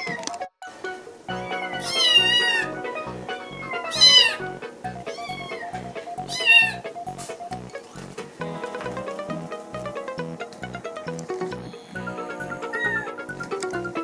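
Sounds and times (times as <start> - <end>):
background music with steady beat: 0.4 - 14.0
kitten mewing: 1.8 - 2.7, 3.3 - 4.4, 5.1 - 5.7, 6.3 - 6.8, 11.6 - 13.2.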